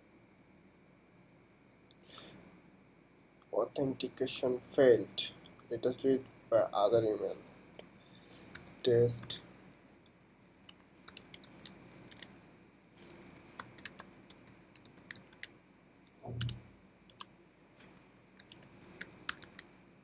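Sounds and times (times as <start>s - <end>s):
computer keyboard typing: 8.4s - 9.4s, 10.5s - 12.3s, 13.0s - 15.5s, 16.3s - 19.6s.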